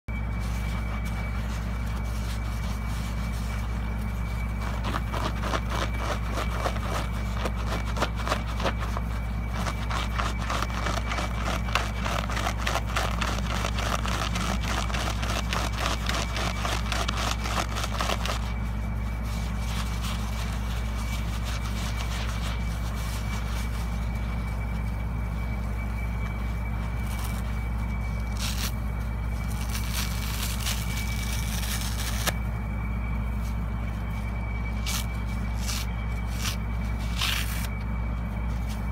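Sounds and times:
faint high whine: 0.0 - 38.9
steady low hum: 0.0 - 38.9
sponge squelching and crackling: 0.2 - 32.4.

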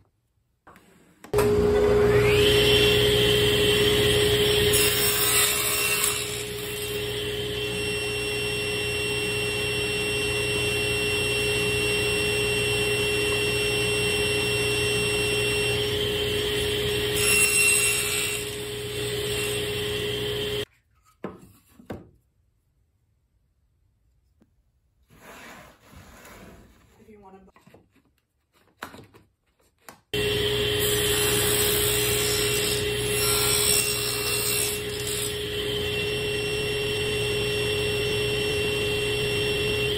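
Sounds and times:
table saw running: 1.4 - 20.6, 30.2 - 39.9
saw blade cutting wood: 2.0 - 8.6, 13.0 - 20.7, 30.2 - 39.9.

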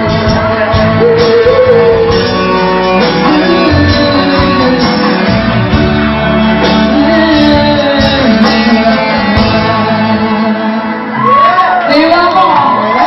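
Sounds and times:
woman singing: 0.0 - 5.6, 6.6 - 11.1
crowd shouting and cheering: 0.0 - 13.0
live band playing: 0.0 - 13.0.

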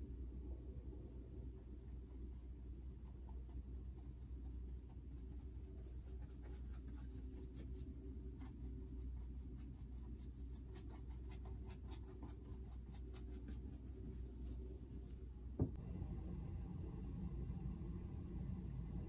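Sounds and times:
low hum: 0.0 - 10.7, 12.5 - 19.0
paintbrush scratching on canvas: 2.0 - 15.1
thump: 15.6 - 15.8.

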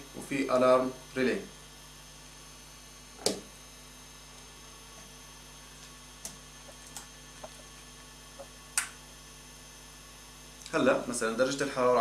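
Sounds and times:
steady electrical hum: 0.0 - 12.0.

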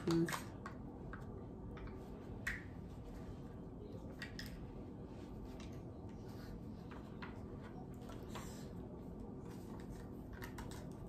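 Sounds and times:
plastic cups clicking and crinkling: 9.5 - 11.0.

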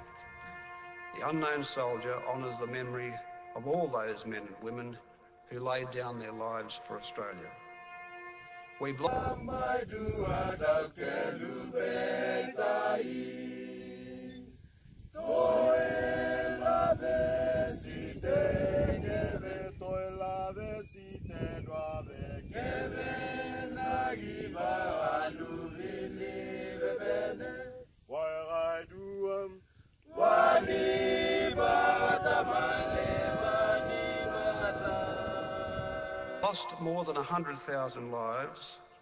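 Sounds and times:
men singing a cappella: 8.9 - 14.5, 15.2 - 36.4.

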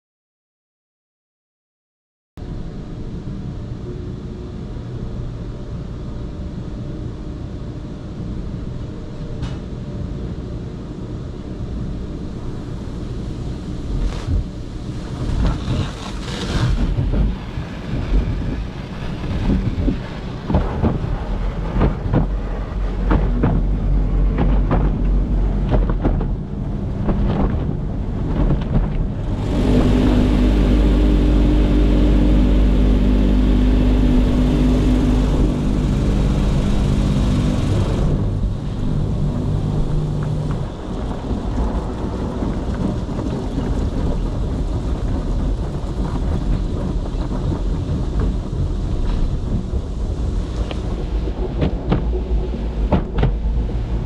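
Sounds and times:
droning machine hum: 2.4 - 54.0
spraying water: 13.0 - 23.2, 29.2 - 41.9
car wash brushes slapping on car: 13.9 - 54.0.

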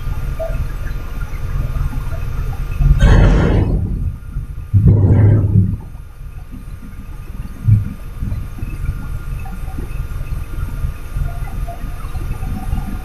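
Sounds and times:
low thud: 2.8 - 5.9.

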